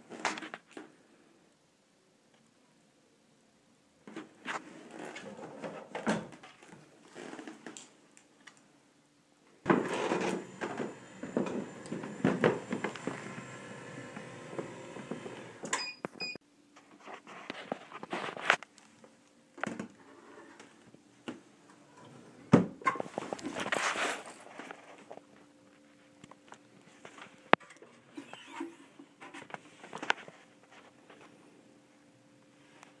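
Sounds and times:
stair lift humming: 9.7 - 15.7.

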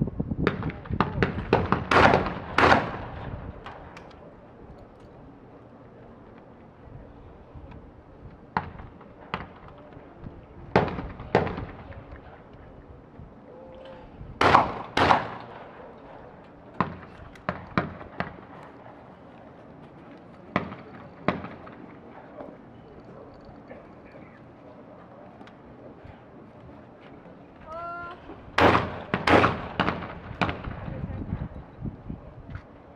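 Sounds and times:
faint distant gunshots: 0.4 - 4.0, 8.5 - 12.5, 13.9 - 19.2, 20.4 - 22.5, 28.5 - 31.1
shotgun shots: 0.5 - 4.0, 10.7 - 12.0, 14.4 - 19.0, 20.5 - 22.2, 28.6 - 30.9.

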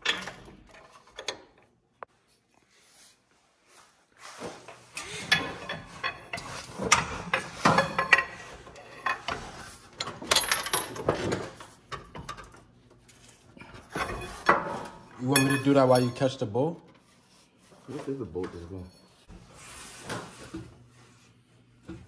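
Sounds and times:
metal tools clanking: 13.6 - 16.8.

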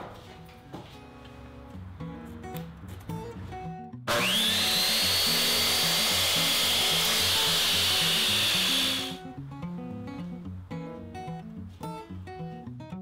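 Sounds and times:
acoustic guitar music: 0.1 - 4.1, 9.1 - 13.0
electric miter saw cutting: 4.1 - 9.2.

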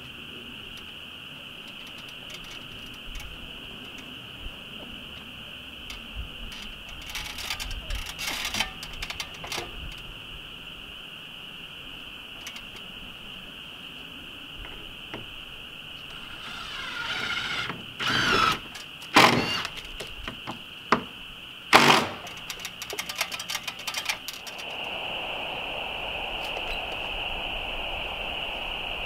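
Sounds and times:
steady high whine: 0.0 - 29.0
small clicks and rattles: 1.6 - 4.2, 5.1 - 10.1, 12.4 - 12.9, 16.1 - 21.0, 21.7 - 24.8
power tool motor whine: 16.1 - 20.6, 21.7 - 22.5.

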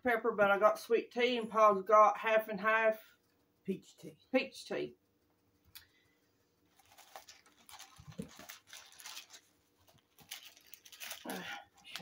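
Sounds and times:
paper wrapper crinkling: 6.6 - 12.0.

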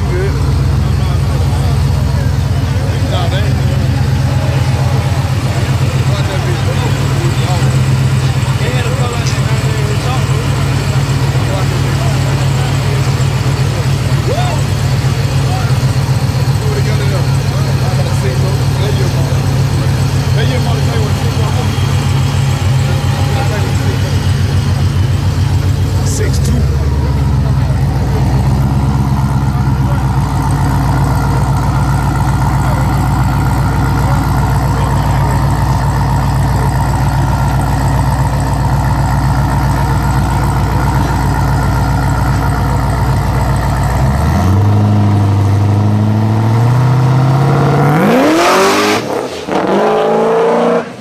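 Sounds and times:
car engine idling: 0.0 - 51.0
car accelerating through gears: 44.0 - 51.0.

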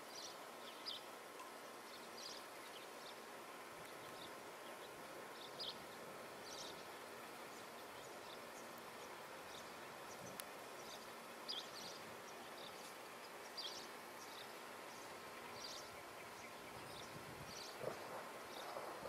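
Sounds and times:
steady hiss: 0.0 - 19.0
faint click: 10.2 - 10.6.

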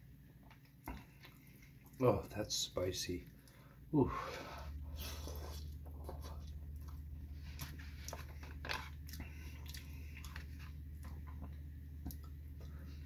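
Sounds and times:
man chewing with wet smacks: 0.2 - 2.0, 5.2 - 13.0
low hum: 3.2 - 13.0.

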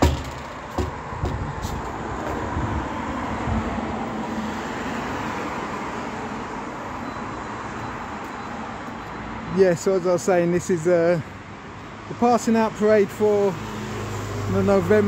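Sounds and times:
road traffic rushing: 0.0 - 15.0.

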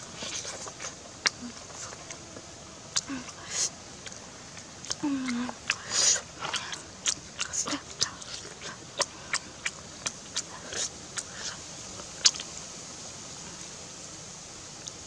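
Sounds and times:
lip-smacking and chewing: 0.0 - 12.6.

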